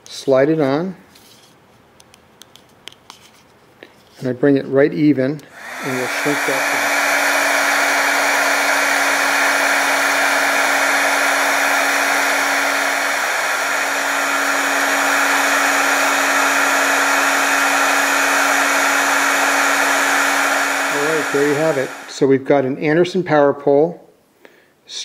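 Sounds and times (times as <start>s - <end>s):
heat gun blowing air: 5.4s - 22.3s.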